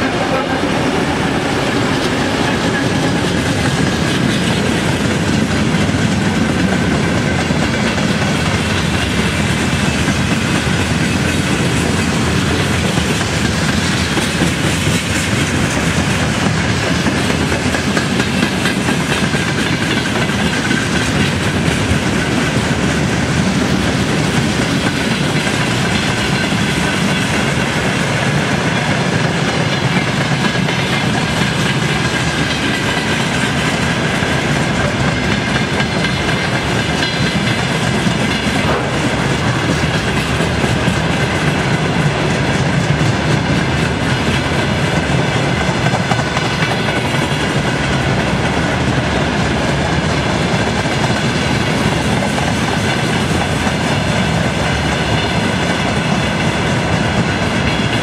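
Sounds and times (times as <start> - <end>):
freight train rumbling past: 0.0 - 58.0
wheels clattering over rails: 0.0 - 58.0.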